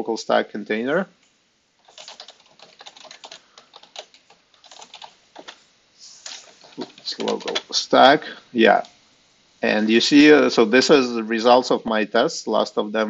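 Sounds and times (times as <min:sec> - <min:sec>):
computer keyboard typing: 0:01.8 - 0:05.6, 0:06.2 - 0:07.7.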